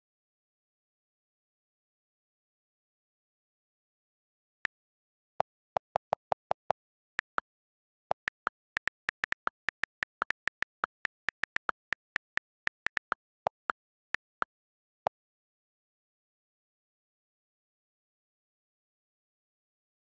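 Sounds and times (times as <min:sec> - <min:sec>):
phone keyboard typing clicks: 0:05.4 - 0:14.5.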